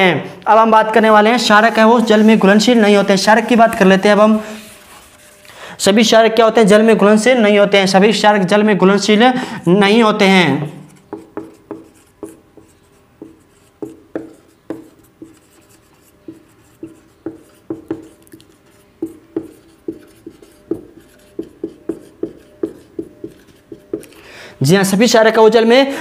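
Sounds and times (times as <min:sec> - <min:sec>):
marker writing on whiteboard: 0:10.8 - 0:24.2.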